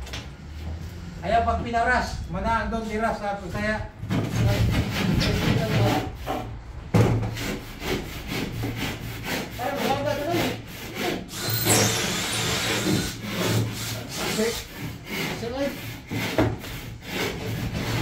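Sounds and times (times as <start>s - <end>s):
hand saw cutting plasterboard: 4.1s - 6.5s, 7.2s - 18.0s.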